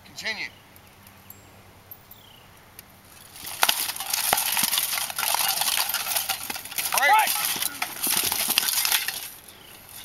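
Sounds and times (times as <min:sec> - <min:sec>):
clatter of plate and chainmail: 0:03.2 - 0:10.0
swords striking helmets and armour: 0:03.4 - 0:09.4.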